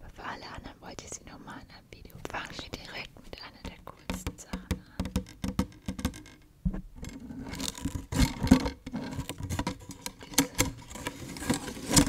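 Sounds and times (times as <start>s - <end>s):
plastic packaging scraping and rustling: 7.1s - 12.0s.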